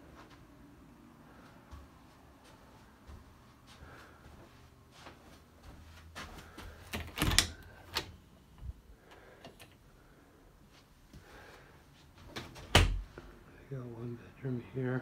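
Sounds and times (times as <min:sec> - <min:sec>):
door knob and latch clicking: 0:06.9 - 0:08.2.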